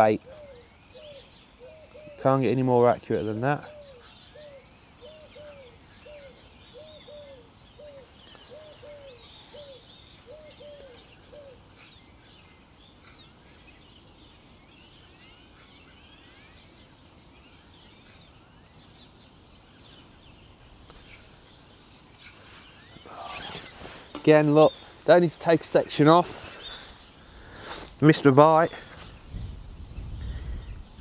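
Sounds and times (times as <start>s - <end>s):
birds chirping and trilling: 0.0s - 31.0s
low cooing call: 0.2s - 2.4s, 3.6s - 11.6s.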